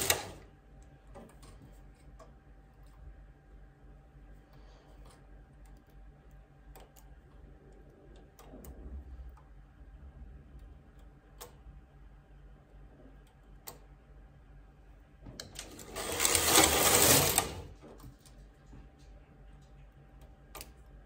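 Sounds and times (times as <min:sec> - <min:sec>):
knitting machine carriage sweep: 0:00.0 - 0:00.4, 0:15.6 - 0:17.8.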